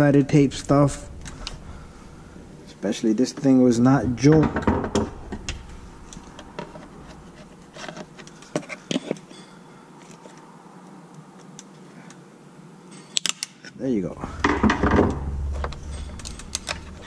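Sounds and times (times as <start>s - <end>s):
faint buzzing hum: 0.0s - 8.7s, 14.0s - 17.0s.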